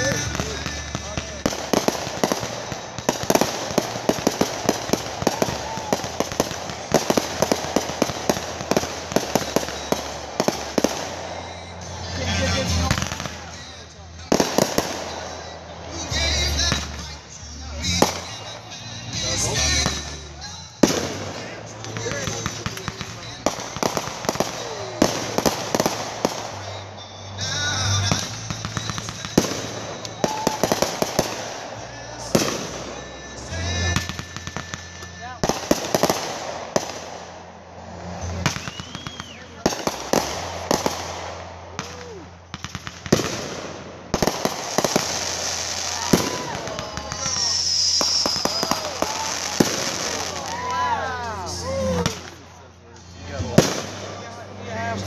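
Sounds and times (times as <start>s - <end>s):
fireworks banging: 0.0s - 55.0s
firework rushing hiss: 34.8s - 50.7s.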